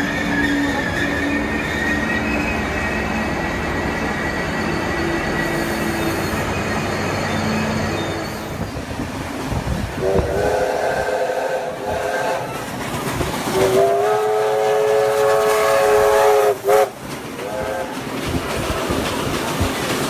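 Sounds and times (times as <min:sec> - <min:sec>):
steam locomotive whistle: 0:00.0 - 0:08.7, 0:10.0 - 0:12.7, 0:13.5 - 0:18.0
thin wheel squeal: 0:00.0 - 0:08.8
railcar engine and wheels rumbling: 0:00.0 - 0:20.0.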